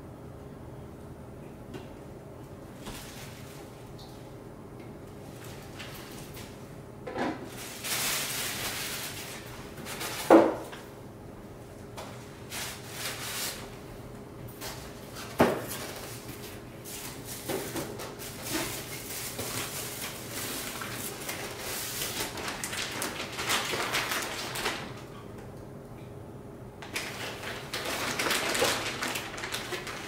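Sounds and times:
cardboard and plastic rustling: 7.4 - 10.6, 14.6 - 25.0, 26.8 - 30.0
plastic bags crinkling: 7.5 - 10.2, 16.9 - 25.0, 26.8 - 30.0.

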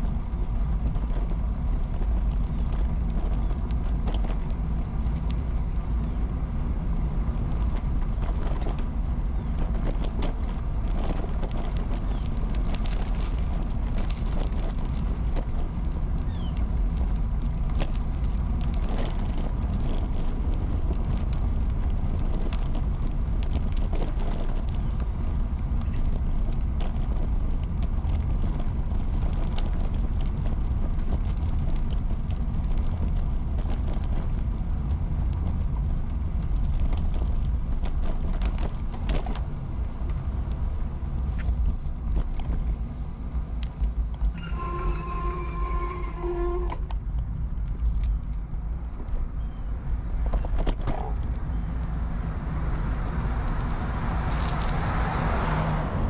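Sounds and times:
bicycle tyres rolling on pavement: 0.0 - 56.0
wind rumble on microphone: 0.0 - 56.0.

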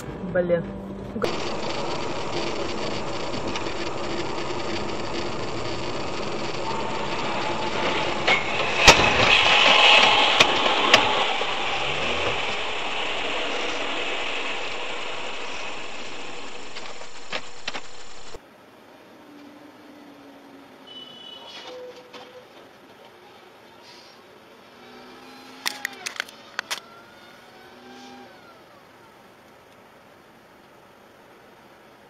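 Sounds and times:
road and engine noise: 0.0 - 32.0
loud hiss: 1.3 - 18.4
sharp bang: 6.0 - 17.8.

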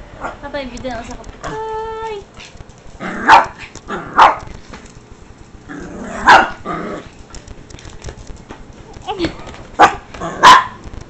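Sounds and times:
small dog barking: 3.1 - 4.5, 6.2 - 6.6, 9.8 - 10.8.

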